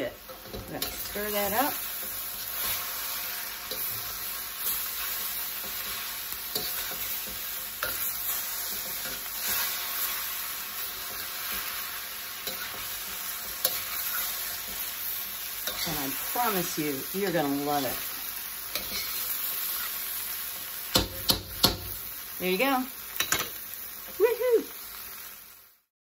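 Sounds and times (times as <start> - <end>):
food sizzling in a wok: 0.0 - 25.9
metal spatula scraping: 0.2 - 22.0
spatula clicking against pan: 20.9 - 21.9.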